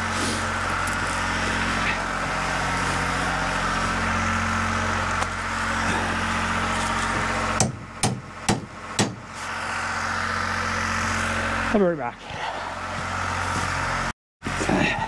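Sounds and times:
generator engine running: 0.0s - 15.0s
sharp knocks: 7.6s - 9.3s.

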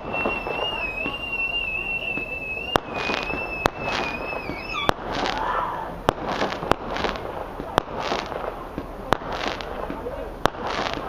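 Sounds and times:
wavering firework whistle: 0.0s - 5.8s
crackling hiss: 0.0s - 11.0s
firework bangs: 0.0s - 11.0s.

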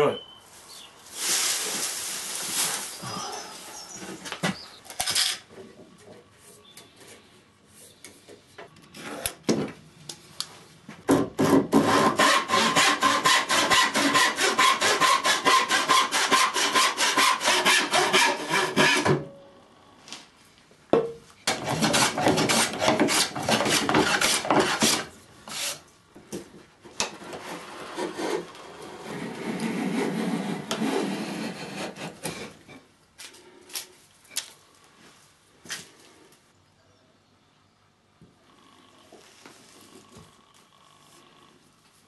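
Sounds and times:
hand saw cutting wood: 11.3s - 19.2s, 21.5s - 25.8s, 27.0s - 32.6s.

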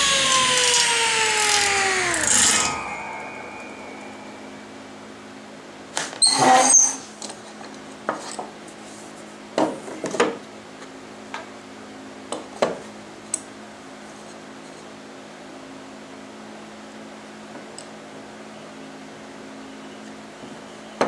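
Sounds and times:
low hum: 0.0s - 5.9s.

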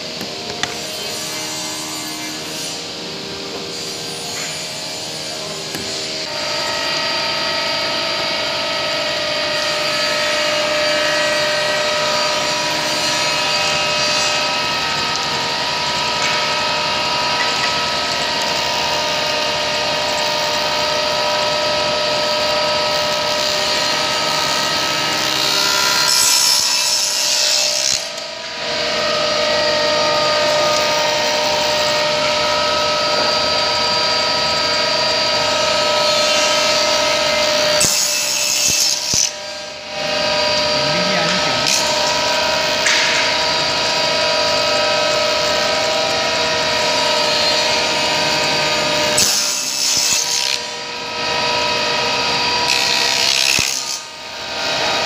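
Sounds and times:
power saw cutting wood: 0.0s - 55.0s.

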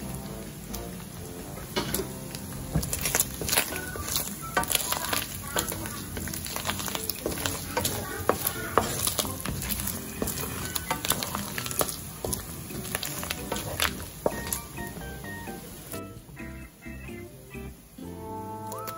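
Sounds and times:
meat sizzling in hot oil: 0.0s - 16.2s
wooden spatula scraping a pan: 1.8s - 15.2s.

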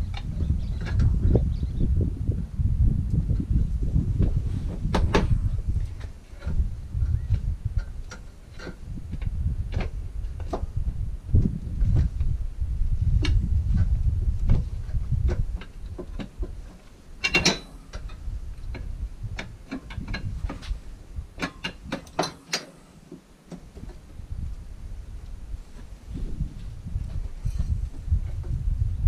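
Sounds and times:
low rumble: 0.0s - 8.1s, 8.7s - 16.6s, 23.9s - 29.0s
metal clatter: 14.9s - 22.9s
hand tools clinking on metal: 17.2s - 18.1s.

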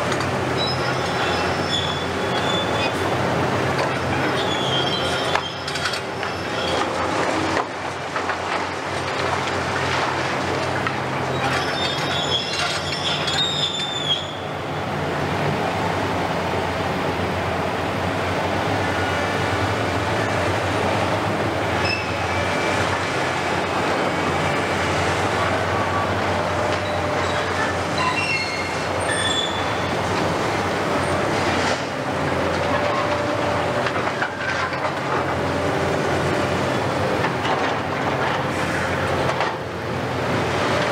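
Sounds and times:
diesel engine drone: 0.0s - 40.9s
short squeaks: 0.6s - 3.0s, 4.2s - 6.8s, 11.3s - 14.5s, 21.8s - 22.2s, 26.8s - 29.8s
high metallic screeches: 4.3s - 6.8s, 11.4s - 14.4s, 26.8s - 29.9s.

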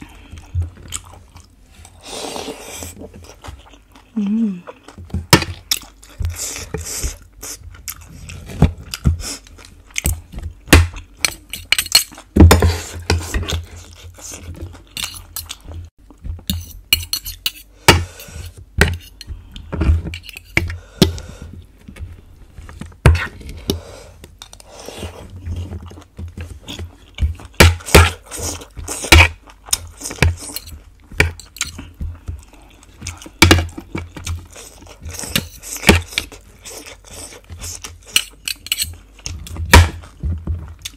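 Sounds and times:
close-up chewing: 0.0s - 12.4s, 21.1s - 40.9s
cutlery scraping on ceramic plate: 16.5s - 17.7s, 18.3s - 20.6s, 30.1s - 31.9s, 37.5s - 39.0s.

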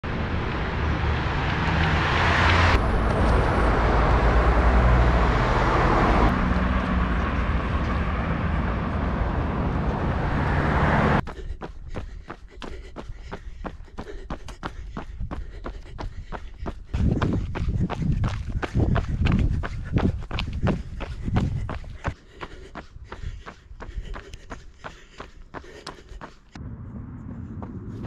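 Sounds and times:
road traffic passing: 0.0s - 11.2s, 25.6s - 28.0s.

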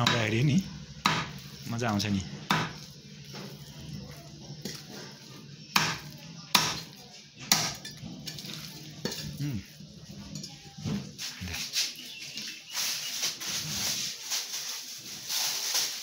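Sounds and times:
blade chopping on wooden block: 1.0s - 1.4s, 2.5s - 2.8s, 5.8s - 6.9s.

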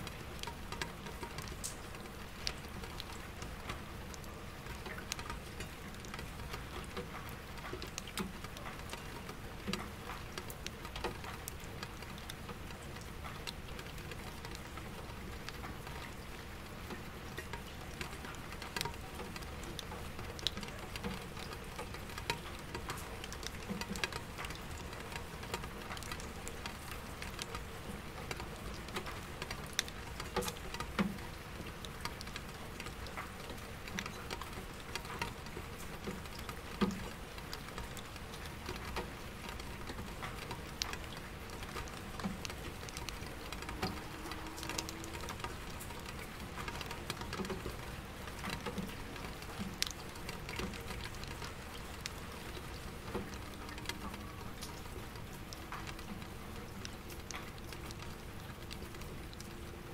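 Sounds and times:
rain on window glass: 0.0s - 59.9s
raindrops ticking in bucket: 0.0s - 59.9s
distant traffic hum: 41.3s - 48.1s.

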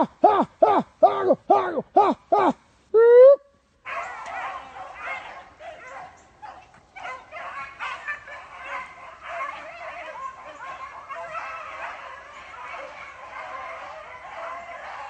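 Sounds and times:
hounds baying: 3.9s - 15.0s.

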